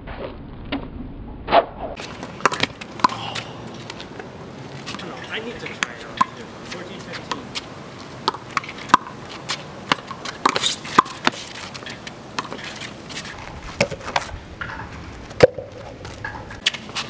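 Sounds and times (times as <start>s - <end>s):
ball bouncing on concrete: 2.0s - 12.7s, 13.8s - 17.0s
sneaker steps and scuffs: 6.6s - 14.3s.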